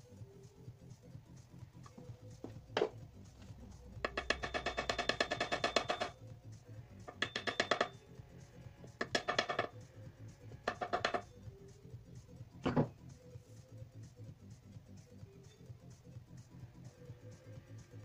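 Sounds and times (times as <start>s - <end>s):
hard knock on axe head: 2.8s - 3.0s, 4.0s - 6.1s, 10.7s - 11.2s
mallet tapping on axe head: 4.0s - 6.1s, 7.1s - 8.0s, 9.0s - 9.7s, 10.7s - 11.2s.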